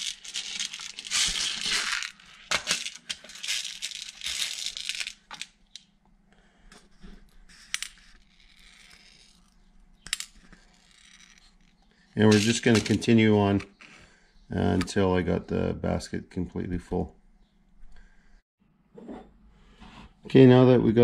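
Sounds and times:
ball bearings rattling in metal tray: 0:00.0 - 0:05.5, 0:12.2 - 0:13.3.

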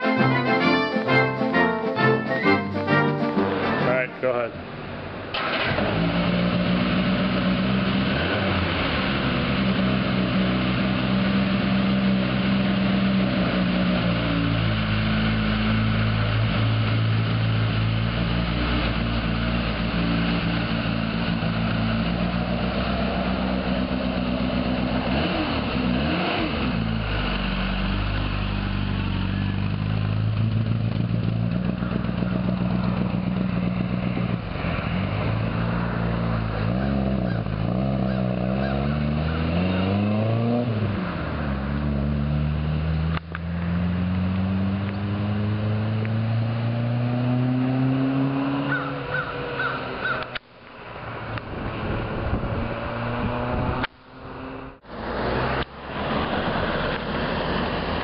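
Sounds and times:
car engine running: 0:03.4 - 0:38.7.

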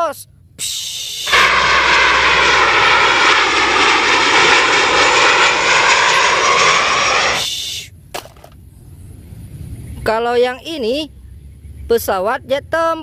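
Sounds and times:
jet engines roaring: 0:00.8 - 0:08.5.

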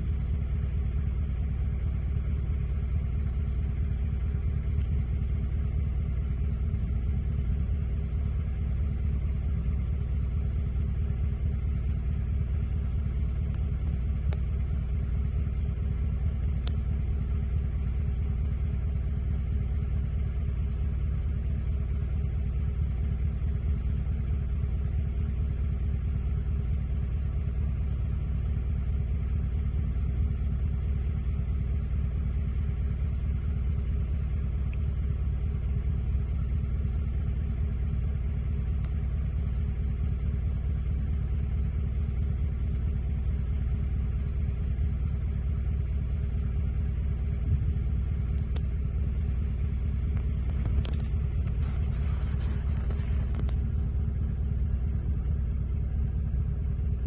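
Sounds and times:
low rumble: 0:47.3 - 0:57.0.

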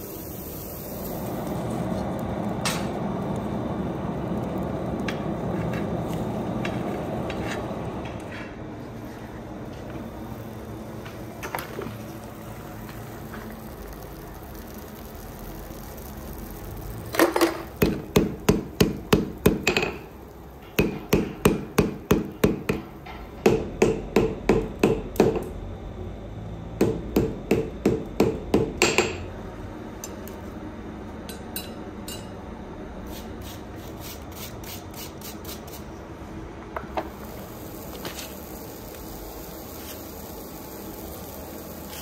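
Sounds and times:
hammer striking metal on anvil: 0:31.3 - 0:32.4.

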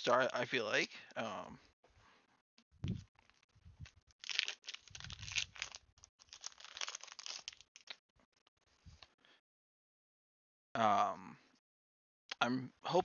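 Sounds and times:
foil wrapper crinkling and tearing: 0:02.9 - 0:08.0.

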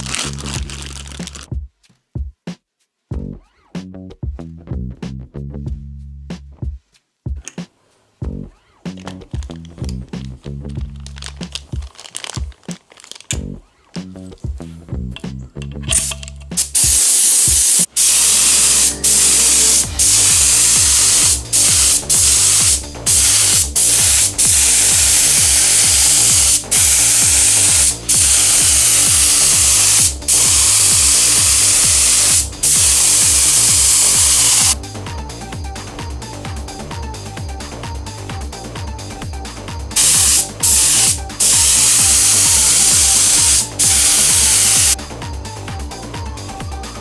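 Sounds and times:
spray gun hissing: 0:16.6 - 0:34.8, 0:40.0 - 0:45.0.

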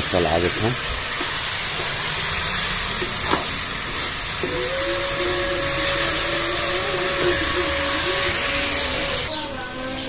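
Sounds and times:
beans sizzling in a pan: 0:00.0 - 0:09.4
steady humming tone: 0:01.8 - 0:10.0
metal spatula stirring: 0:03.0 - 0:09.3.

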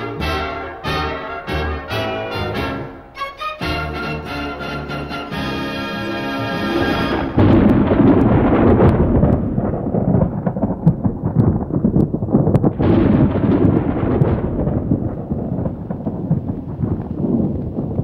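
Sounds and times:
orchestral music with brass: 0:00.0 - 0:07.4
loud low rumble with crackles: 0:06.3 - 0:18.0.

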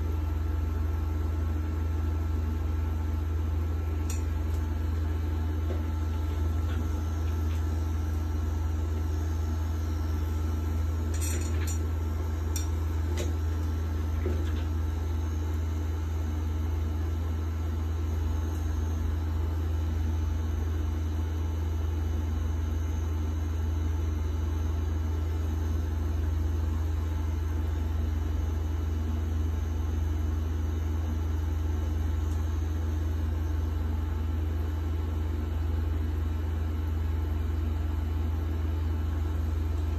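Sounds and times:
tattoo machine humming: 0:03.8 - 0:16.7.

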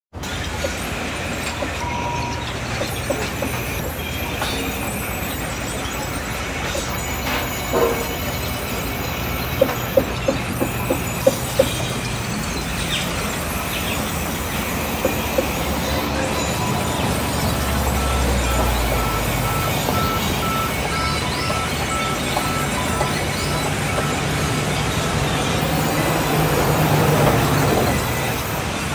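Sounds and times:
machinery hum and rattle: 0:00.2 - 0:28.9
short high squeaks: 0:01.4 - 0:24.5.

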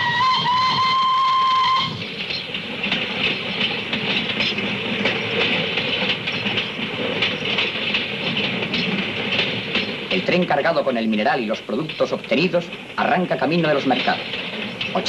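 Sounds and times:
locomotive whistle: 0:00.0 - 0:02.1
train wheels clacking on rails: 0:00.0 - 0:15.0.

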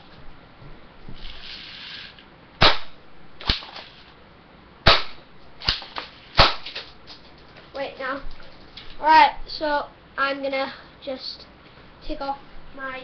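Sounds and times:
airsoft gun shots: 0:02.6 - 0:04.0, 0:04.8 - 0:06.9.

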